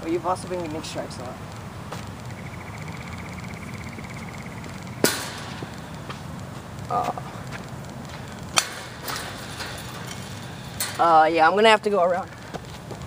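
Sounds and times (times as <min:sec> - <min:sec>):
sharp knock: 0:05.0 - 0:05.6.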